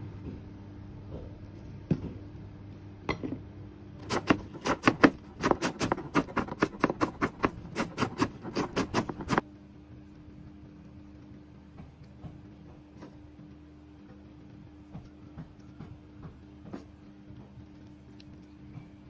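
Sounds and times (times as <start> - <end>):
knife chopping on cutting board: 4.0 - 9.4.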